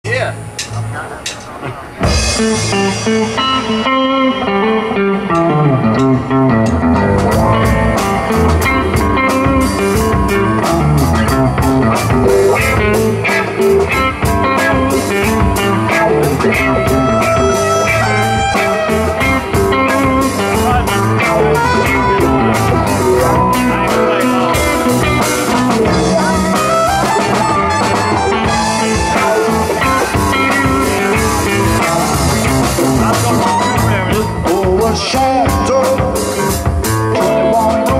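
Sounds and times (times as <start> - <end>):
cymbal ticking a steady beat: 0.1 - 3.6
blues-rock band playing: 0.1 - 37.9.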